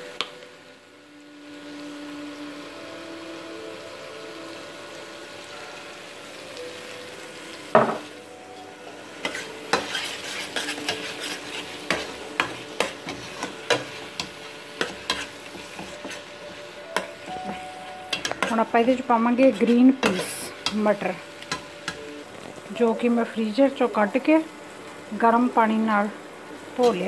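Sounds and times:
spices sizzling: 0:00.0 - 0:27.0
spoon knocking on pot: 0:07.8 - 0:08.1
metal spoon scraping a pot: 0:09.2 - 0:16.3.

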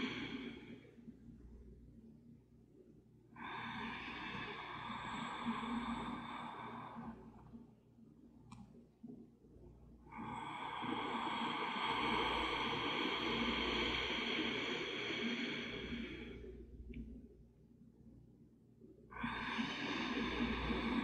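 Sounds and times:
slow breathing: 0:00.0 - 0:01.2, 0:03.4 - 0:07.6, 0:10.1 - 0:17.1, 0:19.1 - 0:21.0.

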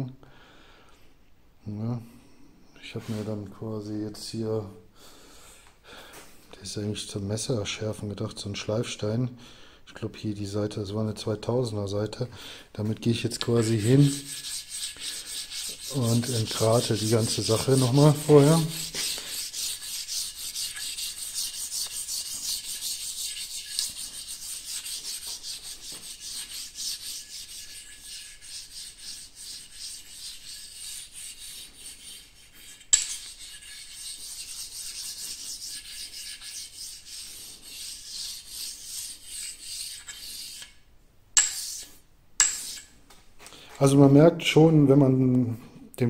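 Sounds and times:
whetstone rubbing on metal: 0:13.4 - 0:40.8, 0:41.4 - 0:43.0.

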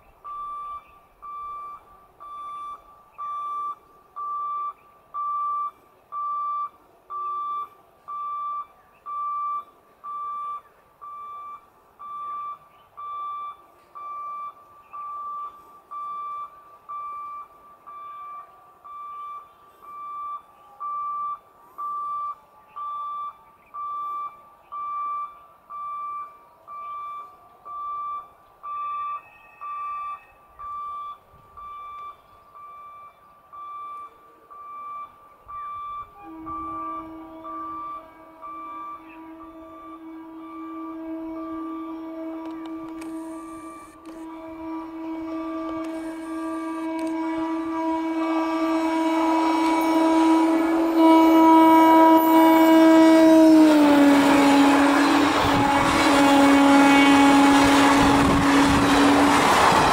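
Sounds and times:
level crossing warning beeps: 0:00.0 - 0:44.3.

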